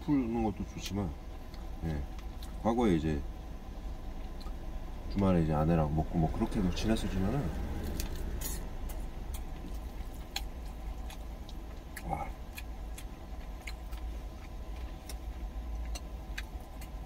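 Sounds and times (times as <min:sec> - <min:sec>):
truck engine idling: 0:03.6 - 0:13.3
chewing and spoon clicks: 0:07.9 - 0:17.0.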